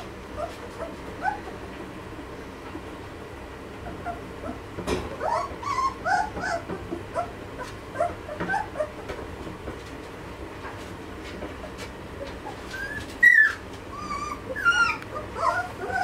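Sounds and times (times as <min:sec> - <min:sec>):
puppies whimpering and squeaking: 0:00.0 - 0:01.8, 0:03.8 - 0:09.2, 0:11.7 - 0:16.0.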